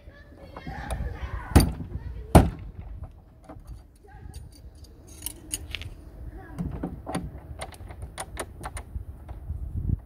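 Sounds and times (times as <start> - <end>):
metal tools clicking in a lock: 3.6 - 5.9.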